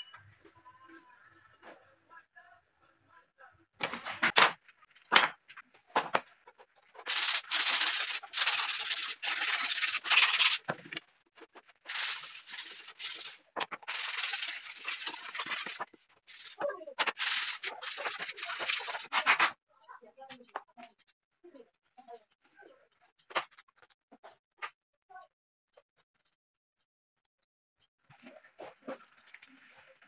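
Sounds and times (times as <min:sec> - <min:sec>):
sandpaper rasping on wood: 0:07.0 - 0:10.6, 0:11.9 - 0:19.5.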